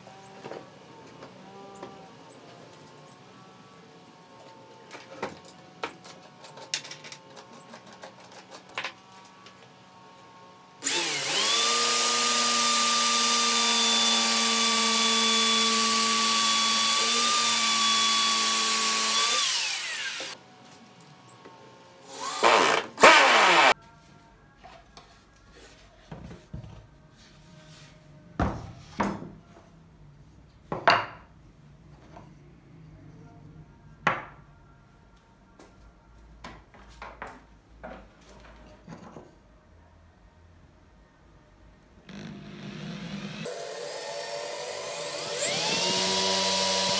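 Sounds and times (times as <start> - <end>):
electric drill boring into wood: 10.8 - 20.4, 22.1 - 23.8, 42.1 - 46.9.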